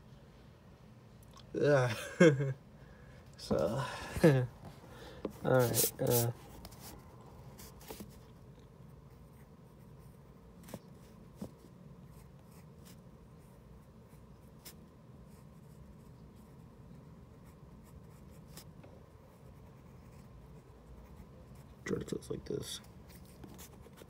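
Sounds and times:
pencil scratching on paper: 0:05.4 - 0:07.0, 0:09.1 - 0:21.9, 0:23.1 - 0:24.0.

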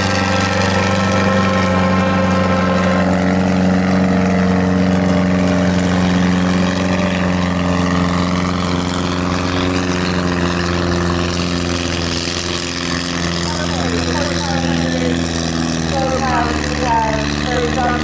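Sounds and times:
tractor engine running under load: 0:00.0 - 0:18.0.

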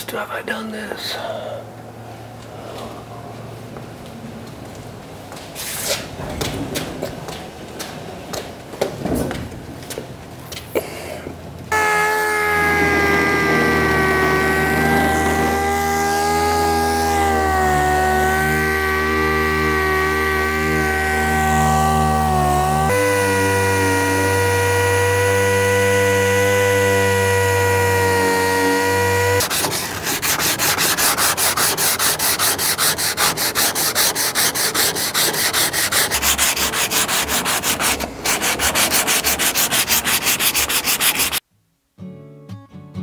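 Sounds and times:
air orbital sander running: 0:11.7 - 0:41.4
hand sanding strokes: 0:11.8 - 0:41.4.

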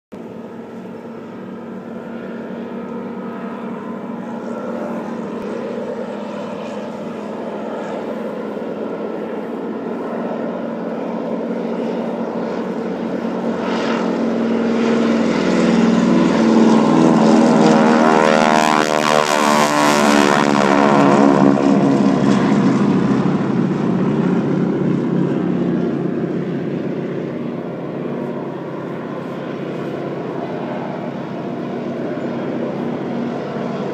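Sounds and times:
propeller planes taking off: 0:00.1 - 0:33.9.

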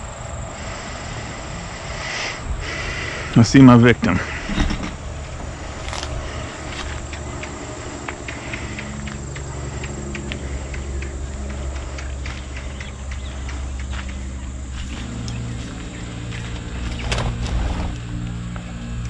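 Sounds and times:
steady low hum: 0:00.0 - 0:19.0
scuffs on dirt floor: 0:05.8 - 0:09.2, 0:11.4 - 0:19.0.

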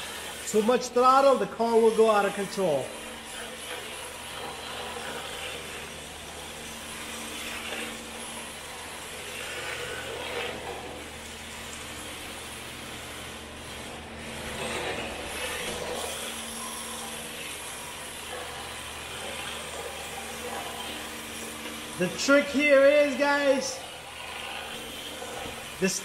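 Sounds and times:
electric motor running: 0:00.0 - 0:26.0
tyres sliding on concrete: 0:01.7 - 0:26.0.

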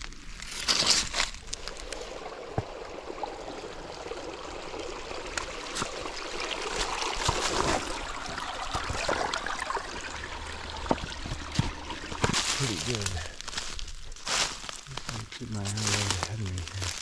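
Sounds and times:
footsteps on stones and wet leaves: 0:00.0 - 0:02.8, 0:05.7 - 0:06.0, 0:06.7 - 0:09.2, 0:10.0 - 0:17.0
creek trickling over rocks: 0:00.0 - 0:17.0.

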